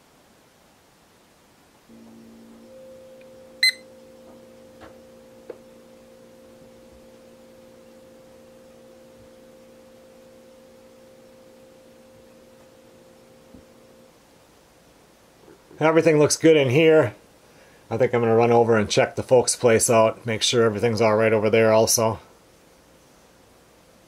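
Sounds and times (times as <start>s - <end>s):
steady low tone hum: 1.8s - 24.0s
high electronic beep: 3.2s - 4.4s.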